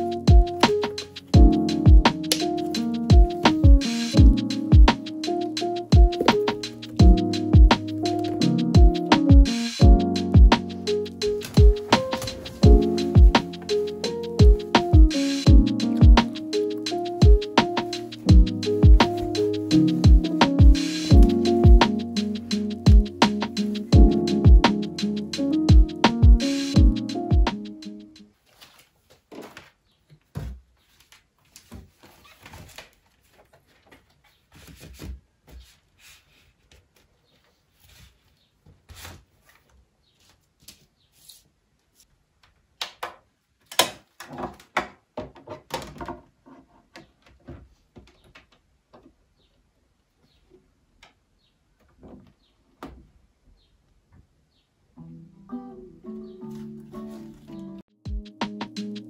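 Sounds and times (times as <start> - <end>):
music playing: 0.0 - 28.2, 55.0 - 59.0
vinyl record handling clicks and rustles: 2.1 - 2.9, 10.6 - 12.7, 28.4 - 35.1.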